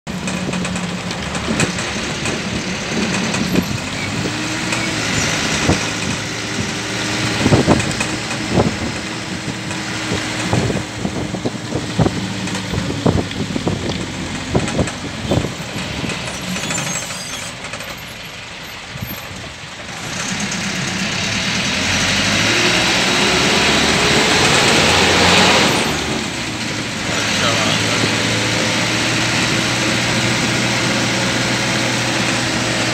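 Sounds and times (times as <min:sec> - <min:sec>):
vehicle engine and road noise: 0:00.0 - 0:32.9
knocks and rattles: 0:00.1 - 0:18.3.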